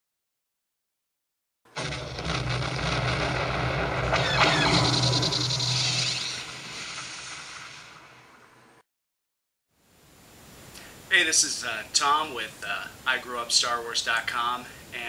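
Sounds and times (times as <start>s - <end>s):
roaring spacecraft fly-by: 1.8s - 6.6s.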